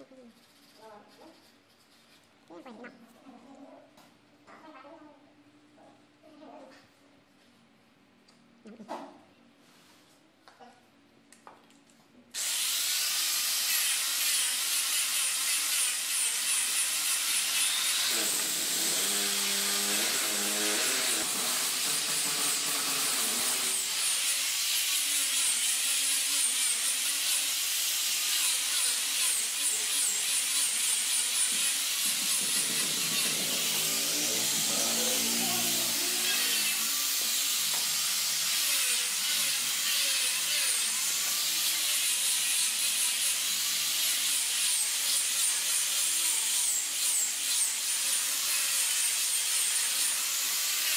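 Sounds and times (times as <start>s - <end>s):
angle grinder sanding wood: 12.4s - 50.9s.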